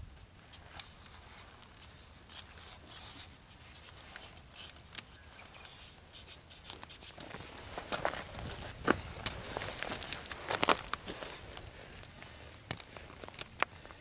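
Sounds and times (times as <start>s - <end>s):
footsteps through dry grass: 5.8s - 14.0s.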